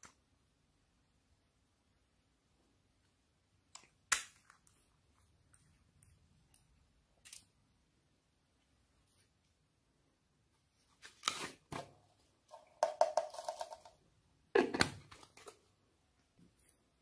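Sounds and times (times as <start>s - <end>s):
plastic toy containers rattling: 12.5s - 14.0s.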